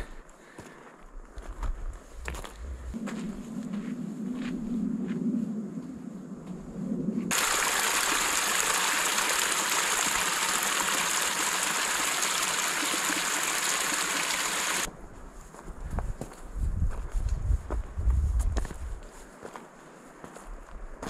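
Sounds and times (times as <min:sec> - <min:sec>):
mountain stream rushing: 0:07.3 - 0:14.9.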